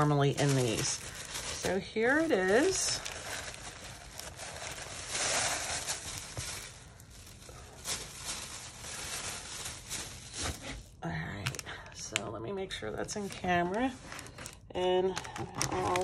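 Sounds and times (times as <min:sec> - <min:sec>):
plastic packaging crinkling: 0:00.0 - 0:16.0.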